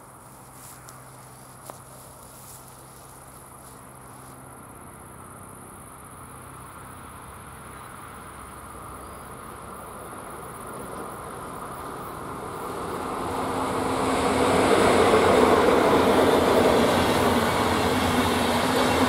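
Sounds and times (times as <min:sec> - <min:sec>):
insects chirping: 0:00.0 - 0:19.0
train rumble: 0:08.1 - 0:19.0.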